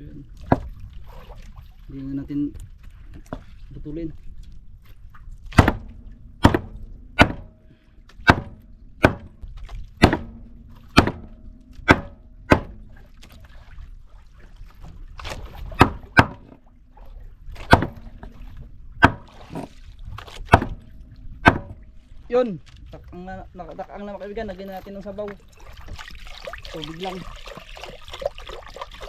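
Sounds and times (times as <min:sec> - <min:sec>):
knife chopping through fish: 0:05.5 - 0:05.8, 0:11.0 - 0:12.7.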